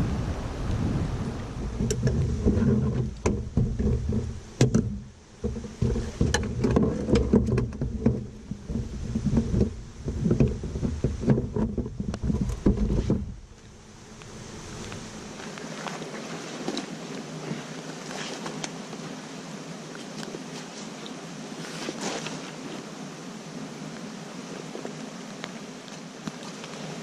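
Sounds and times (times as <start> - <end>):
heavy low rumble: 0.0 - 6.2, 8.2 - 15.5
gear knocking in canoe: 1.6 - 13.5.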